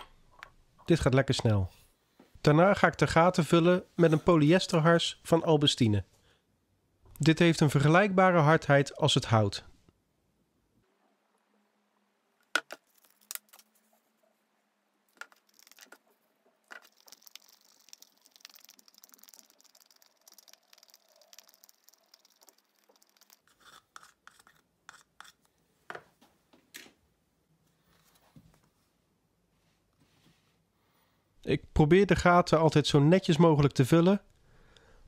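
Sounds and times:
stick scraping in plastic cup: 16.7s - 25.4s.

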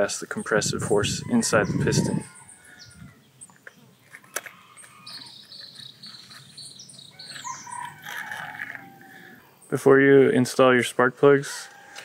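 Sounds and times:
high-pitched wildlife chirping: 0.4s - 9.8s.

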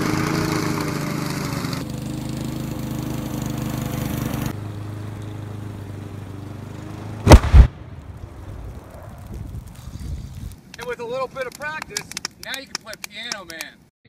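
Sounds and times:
lawn mower engine running: 0.0s - 8.5s.

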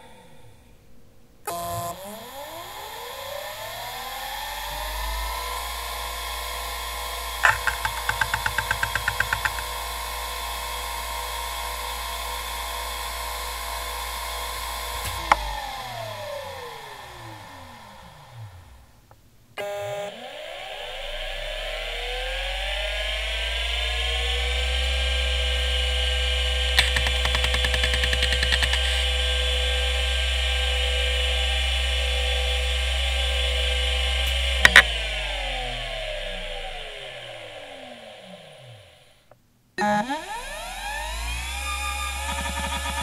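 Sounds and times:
hard drive spindle whine: 1.5s - 19.0s, 19.6s - 39.1s, 40.2s - 43.0s
hard drive head-seek clicks: 7.4s - 9.8s, 26.8s - 29.0s.

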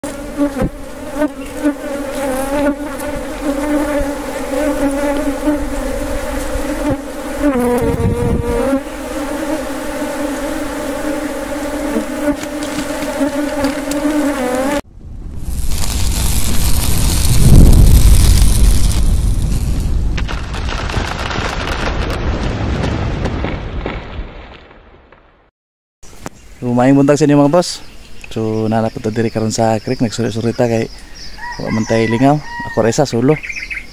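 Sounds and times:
bees buzzing: 0.0s - 14.8s
rising whoosh into deep rumble: 14.9s - 20.2s.

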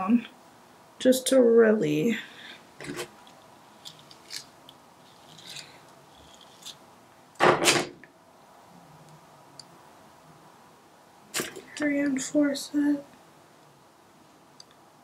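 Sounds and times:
hair handling noises: 2.8s - 6.8s.

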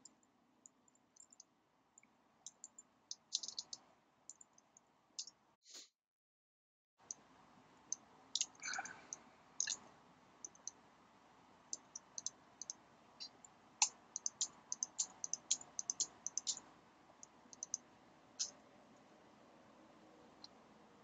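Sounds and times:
mouse clicks: 2.5s - 4.6s, 10.4s - 10.8s, 11.7s - 17.8s
computer keyboard keystrokes: 11.8s - 12.8s, 14.2s - 16.6s, 17.6s - 17.8s.

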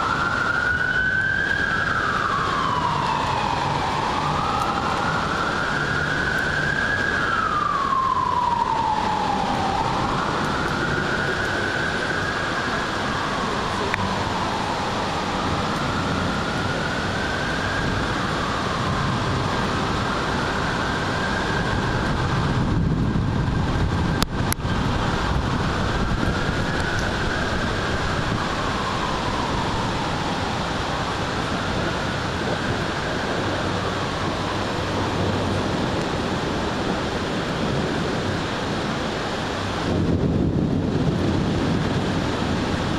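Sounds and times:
distant siren wailing: 0.0s - 42.9s
rain hissing: 0.0s - 42.9s.

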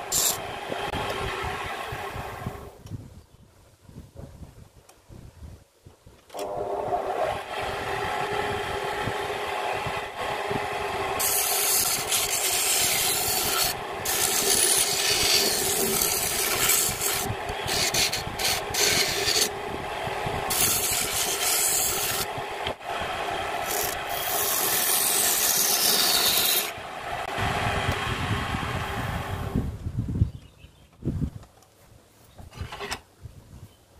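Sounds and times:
turning tool scraping wood: 0.0s - 1.5s, 11.1s - 19.6s, 20.4s - 22.3s, 23.6s - 26.8s
lathe motor hum: 0.0s - 2.7s, 6.4s - 29.6s.

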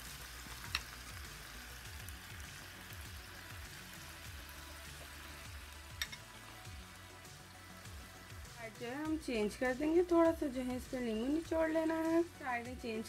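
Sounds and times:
chicken sizzling in oil: 0.0s - 13.0s
metal spoon clicking on pan: 6.0s - 6.3s.

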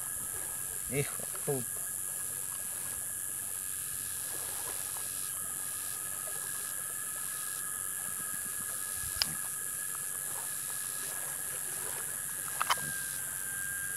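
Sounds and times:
steady high hiss: 0.0s - 13.9s
small clicks and rustles: 12.5s - 13.0s.

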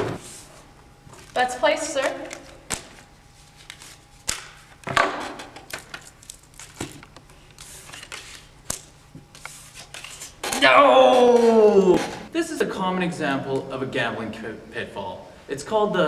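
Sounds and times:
playing cards being dealt: 2.0s - 4.8s, 5.7s - 10.4s.

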